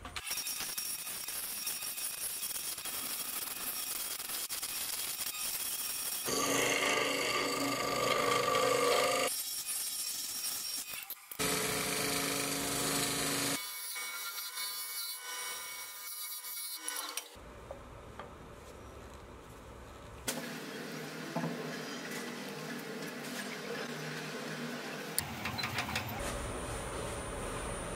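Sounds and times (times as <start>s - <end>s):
hollowing tool scraping wood on lathe: 6.3s - 9.3s.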